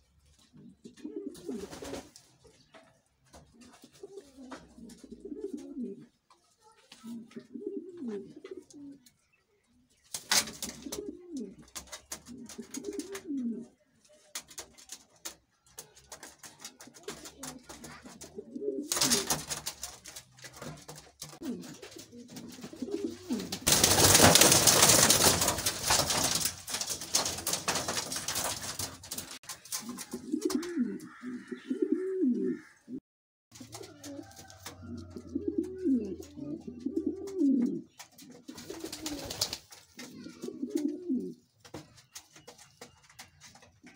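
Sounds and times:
pigeons cooing: 0.5 - 2.1, 3.5 - 6.2, 7.0 - 9.2, 10.3 - 13.8, 16.2 - 33.0, 33.6 - 41.5
clicks and scratches: 14.0 - 30.8.

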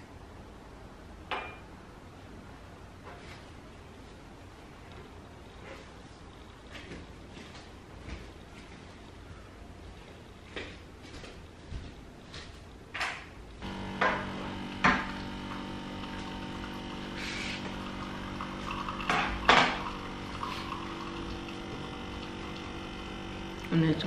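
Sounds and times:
espresso machine pump humming: 13.6 - 24.0.

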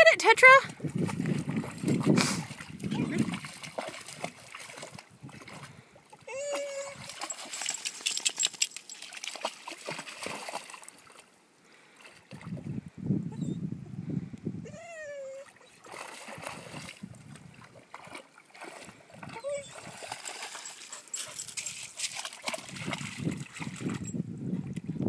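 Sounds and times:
dog splashing through water: 0.7 - 11.3, 15.5 - 24.8
dog whining: 6.2 - 7.2, 14.6 - 15.8, 19.3 - 19.9.

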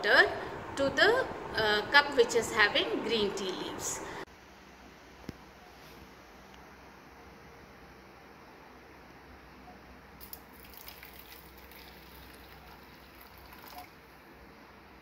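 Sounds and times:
hot water pouring: 10.2 - 14.1.

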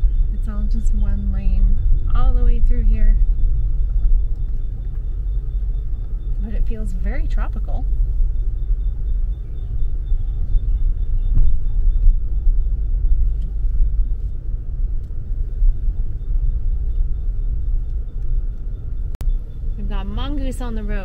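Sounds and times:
car driving on paved road: 0.0 - 21.0.

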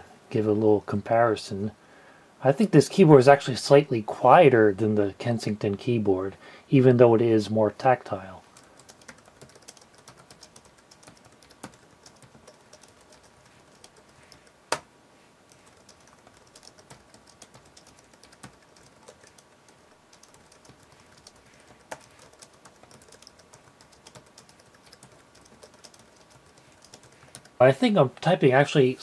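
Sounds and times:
typing on keyboard: 8.5 - 14.8, 15.5 - 27.6.

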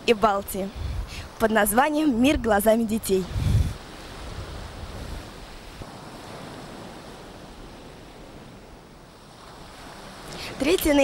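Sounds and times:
wind rumble on microphone: 0.0 - 11.0
sea surf breaking: 2.8 - 11.0.

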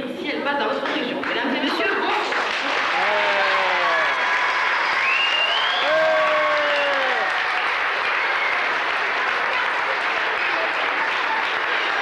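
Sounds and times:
audience applauding: 2.0 - 12.0.

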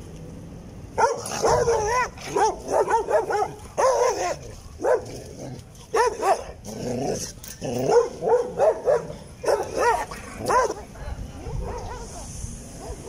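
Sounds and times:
dogs barking: 1.0 - 6.6, 7.6 - 12.2.

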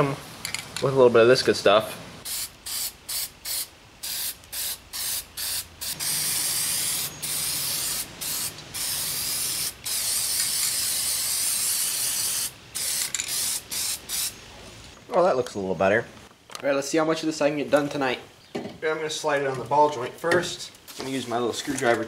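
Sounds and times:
aerosol spray can spraying: 2.2 - 14.3.

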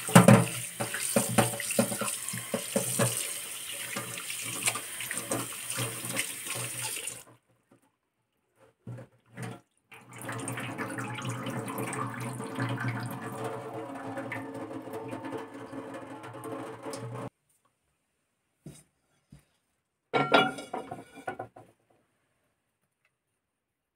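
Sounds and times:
tap water running into a sink: 0.0 - 7.3, 9.4 - 17.3.

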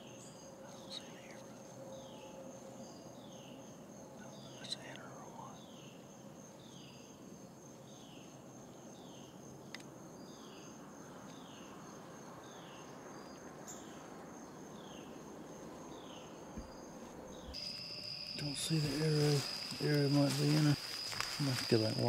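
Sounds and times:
insect high trill: 15.9 - 22.0.

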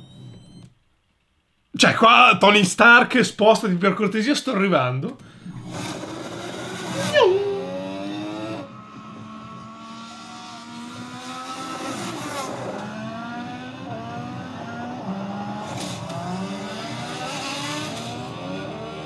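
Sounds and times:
motorcycle engine accelerating: 5.5 - 19.0.

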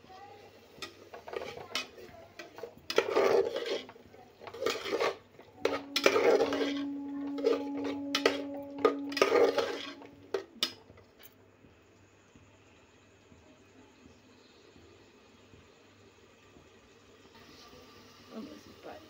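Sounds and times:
food frying: 0.0 - 7.1, 14.0 - 19.0
metal spatula scraping pot: 0.8 - 10.8
steady low tone: 5.6 - 11.0.

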